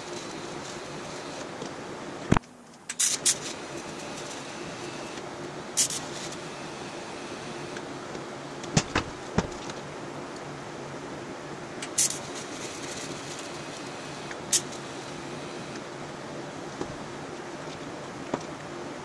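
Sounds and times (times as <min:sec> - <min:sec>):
welding arc hiss: 0:00.0 - 0:01.6, 0:02.2 - 0:07.9, 0:11.8 - 0:15.9
welder hum: 0:00.0 - 0:09.9, 0:11.8 - 0:16.0.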